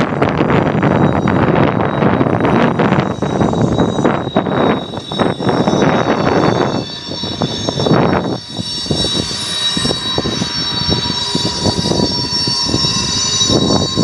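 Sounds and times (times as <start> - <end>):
distant engine drone: 0.0 - 14.0
wind gusting on microphone: 0.0 - 14.0.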